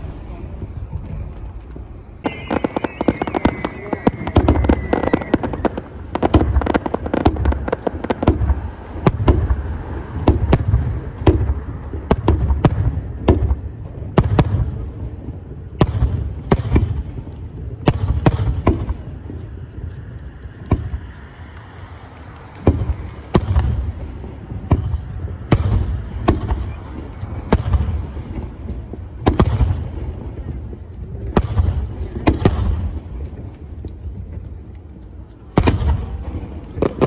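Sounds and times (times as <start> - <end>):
firework shells bursting: 0.6 - 14.9, 15.8 - 37.0.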